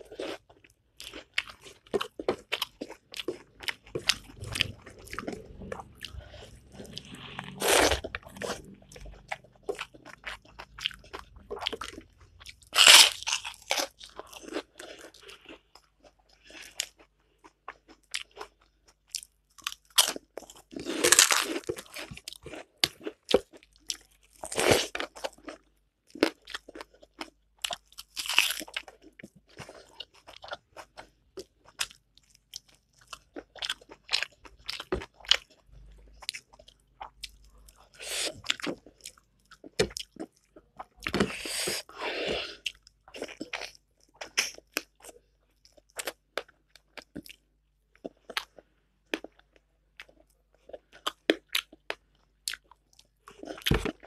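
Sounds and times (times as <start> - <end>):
person crunching and chewing food: 0.0 - 54.0.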